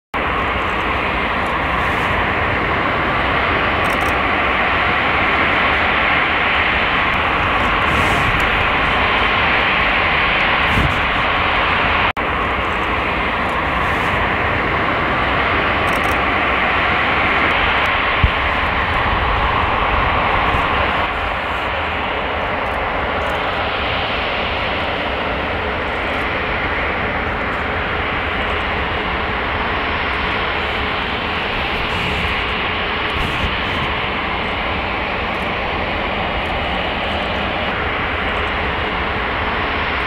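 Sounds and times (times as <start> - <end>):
jet engines rumbling: 0.2 - 40.0.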